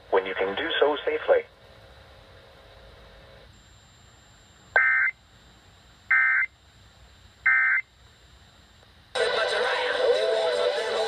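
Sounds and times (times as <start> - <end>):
buzzy data tone bursts: 3.5 - 6.6, 7.2 - 8.8.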